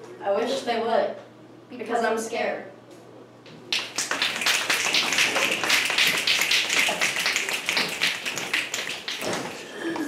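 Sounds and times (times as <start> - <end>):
audience applauding: 3.7 - 10.0.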